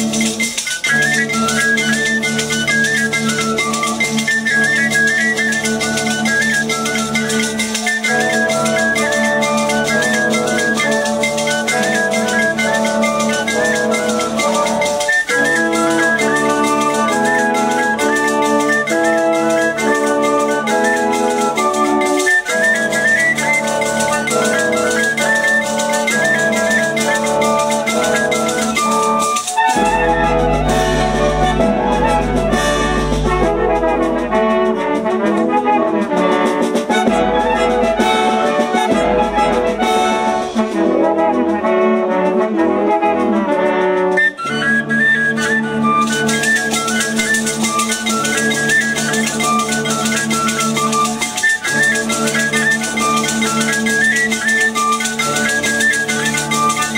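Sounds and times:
wind band with brass and woodwinds: 0.0s - 56.9s
strong low bass: 29.8s - 35.2s.

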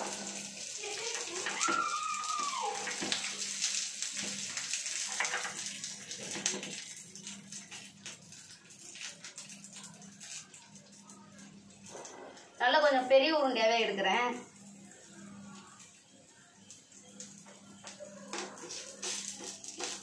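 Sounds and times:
batter sizzling in oil: 0.0s - 20.0s.

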